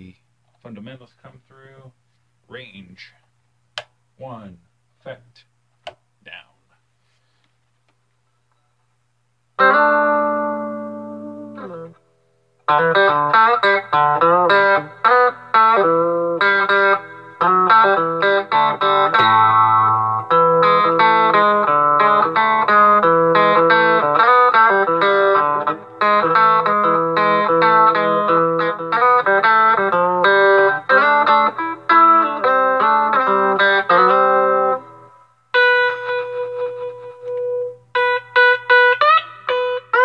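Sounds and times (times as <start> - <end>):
electric guitar chords and notes: 9.6 - 40.0.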